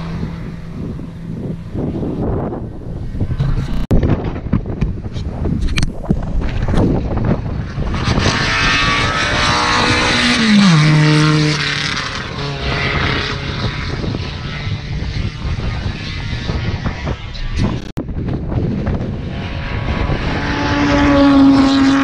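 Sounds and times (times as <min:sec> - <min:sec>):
race car passing at speed: 0:07.2 - 0:17.6, 0:18.8 - 0:22.0.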